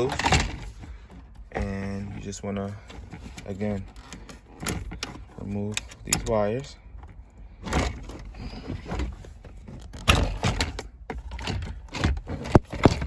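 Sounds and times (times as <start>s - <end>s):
plastic connectors clicking and rattling: 3.2s - 8.1s.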